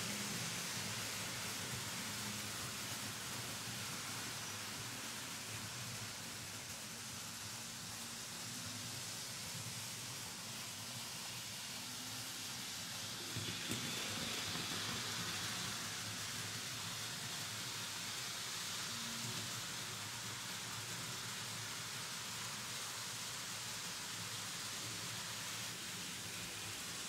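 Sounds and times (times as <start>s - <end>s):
model train wheels rattling on rails: 9.4s - 27.0s.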